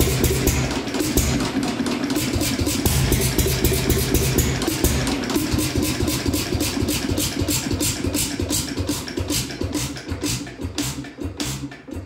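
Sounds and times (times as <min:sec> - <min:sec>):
stationary engine firing: 0:02.7 - 0:05.4.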